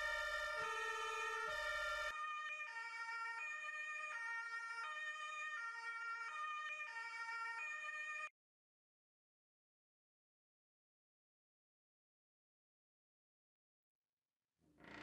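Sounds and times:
two-tone emergency siren: 0.0s - 8.3s.

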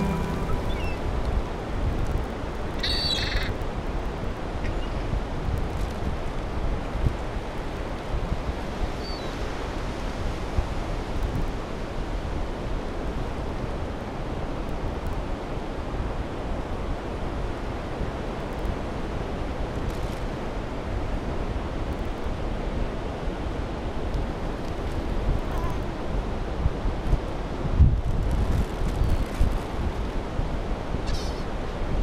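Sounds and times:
ocean surf breaking: 0.0s - 2.8s
wind on microphone: 0.0s - 32.0s.

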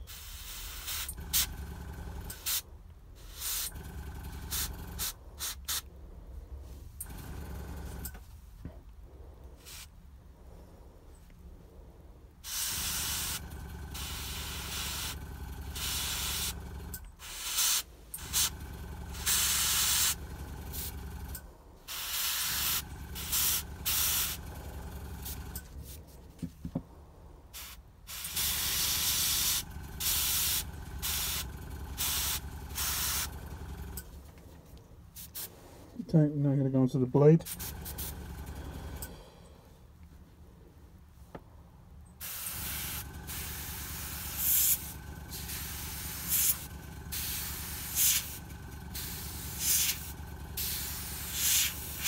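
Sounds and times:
airbrush spraying hiss: 0.0s - 1.5s, 2.3s - 3.8s, 4.5s - 5.9s, 9.6s - 10.0s, 12.4s - 15.2s, 15.8s - 16.6s, 17.2s - 18.5s, 19.1s - 20.9s, 21.9s - 24.4s, 27.6s - 33.3s, 35.2s - 35.6s, 42.2s - 52.0s.

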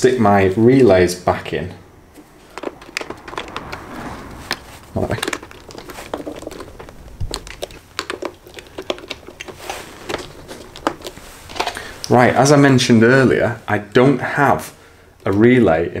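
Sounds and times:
handling rustle: 2.1s - 13.8s.

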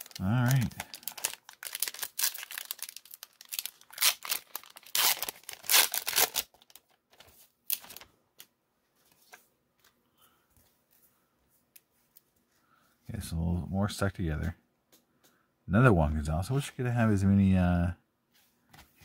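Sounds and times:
wrapper tearing and crinkling: 0.0s - 8.1s.

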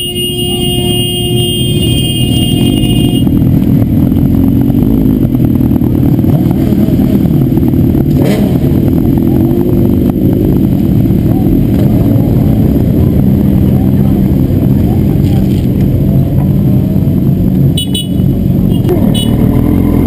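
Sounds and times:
motorcycle engines revving: 0.0s - 20.0s.

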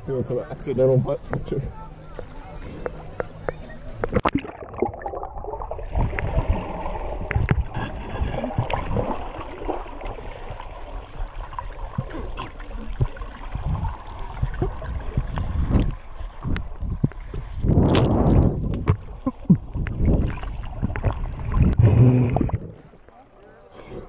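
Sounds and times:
low underwater rumble: 0.9s - 24.0s
underwater clicks: 2.1s - 5.1s, 14.5s - 23.2s
underwater gurgling and bubbling: 2.6s - 24.0s
water splash: 4.0s - 16.0s.

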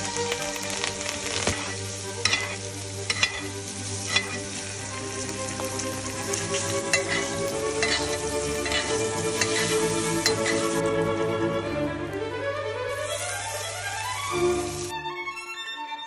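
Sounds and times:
steak sizzling in a pan: 0.0s - 10.8s, 12.9s - 14.9s
metal spoon clicking on pan: 2.2s - 3.4s, 4.1s - 4.4s.

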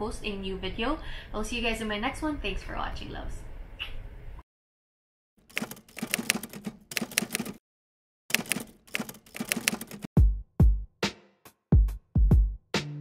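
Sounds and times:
typewriter key clacking: 5.5s - 7.6s, 8.3s - 10.1s.

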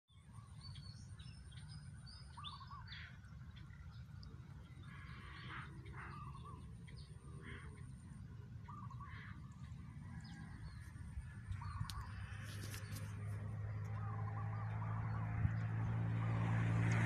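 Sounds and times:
birds calling: 0.1s - 16.4s
low steady hum: 0.1s - 17.0s.

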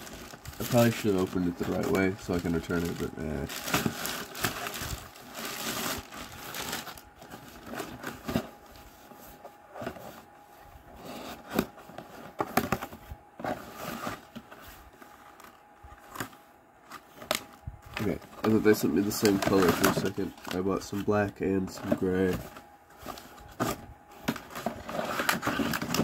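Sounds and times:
plastic bag crinkling: 0.0s - 8.8s
cardboard flaps scraping and tapping: 21.8s - 26.0s.

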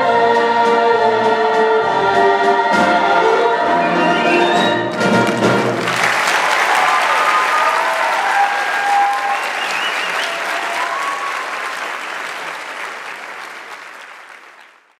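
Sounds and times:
audience applauding: 4.4s - 15.0s
whoops from audience: 6.3s - 11.9s.

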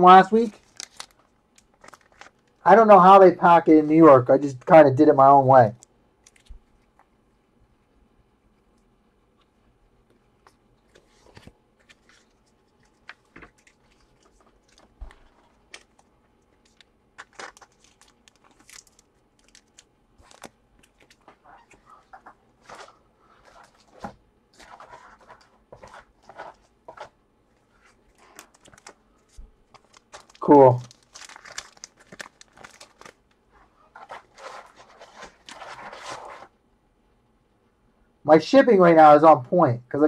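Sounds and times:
crinkling and rustling: 0.3s - 2.6s, 8.7s - 36.6s.

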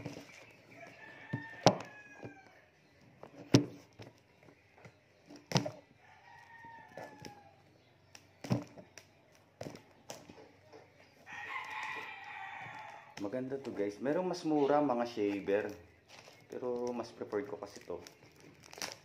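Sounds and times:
rooster crowing: 0.8s - 2.6s, 6.0s - 7.6s, 11.2s - 13.2s.

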